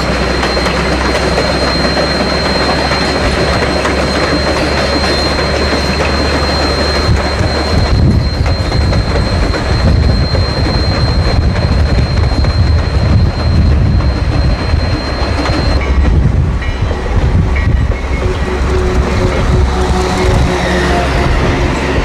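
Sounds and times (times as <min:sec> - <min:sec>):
wheels clicking over rail joints: 0:00.0 - 0:17.0
steam train rumble: 0:00.0 - 0:22.0.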